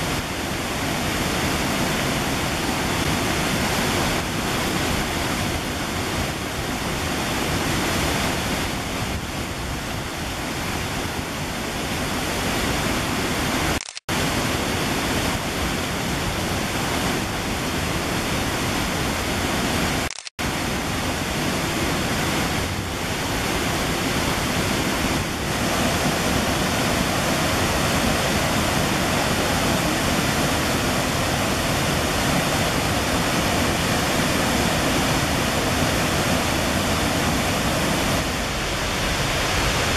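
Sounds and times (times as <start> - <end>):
waterfall and stream rushing: 0.0 - 39.9.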